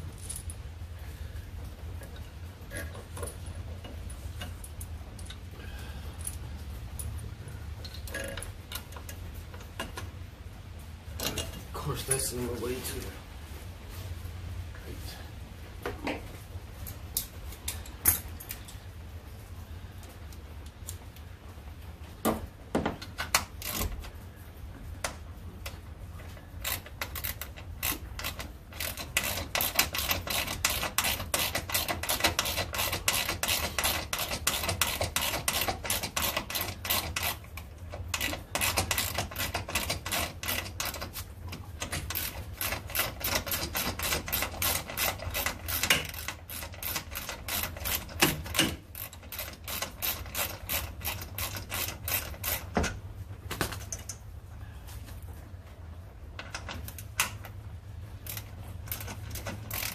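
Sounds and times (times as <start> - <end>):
hand ratchet clicking: 23.0 - 24.1, 25.0 - 53.0, 56.4 - 57.6, 58.2 - 59.9.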